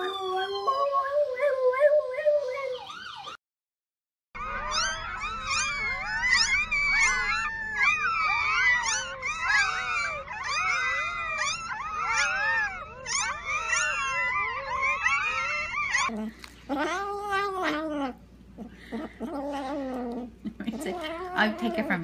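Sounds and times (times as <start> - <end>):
puppies squealing and whimpering: 4.4 - 22.0
low steady rumble: 4.5 - 22.0.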